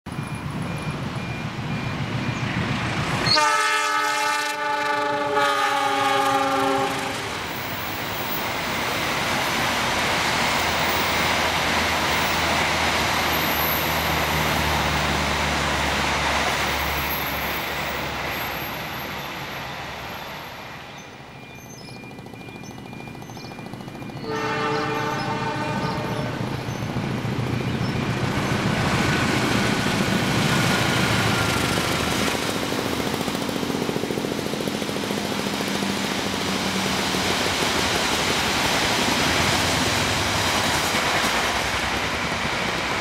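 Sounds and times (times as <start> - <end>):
train wheels rushing on rails: 0.1 - 43.0
multi-tone locomotive horn: 3.2 - 7.6, 24.2 - 26.8.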